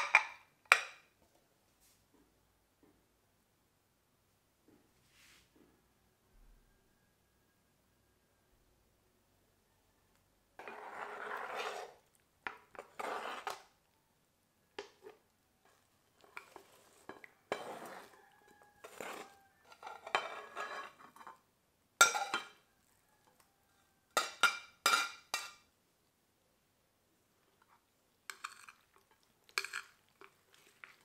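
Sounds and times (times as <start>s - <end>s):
cutlery scraping a dish: 10.6s - 13.7s, 14.8s - 21.4s, 22.0s - 22.6s, 24.2s - 25.6s, 28.3s - 31.0s.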